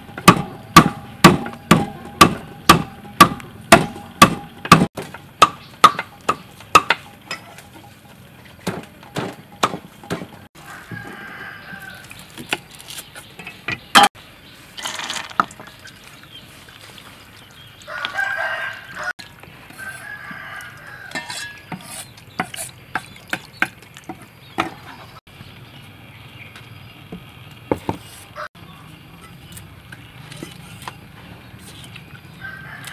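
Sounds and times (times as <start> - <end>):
cleaver chopping on wooden block: 0.2 - 7.1, 8.6 - 10.3
rooster crowing: 10.6 - 12.1, 17.9 - 21.7, 32.4 - 32.9.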